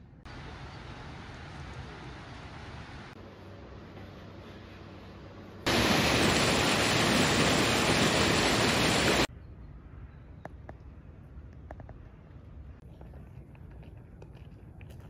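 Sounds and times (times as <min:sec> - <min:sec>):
stream rushing over rocks: 0:05.7 - 0:09.3.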